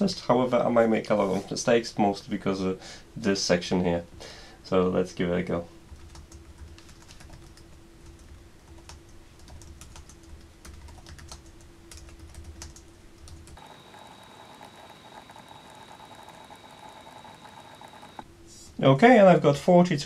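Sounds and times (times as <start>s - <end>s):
faint steady hum: 0.0s - 20.0s
fast typing on laptop keyboard: 5.9s - 18.2s.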